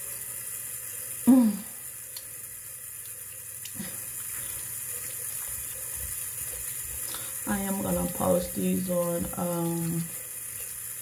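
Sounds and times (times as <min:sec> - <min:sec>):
face being washed: 0:00.0 - 0:11.0
tap running into a sink: 0:03.0 - 0:10.9.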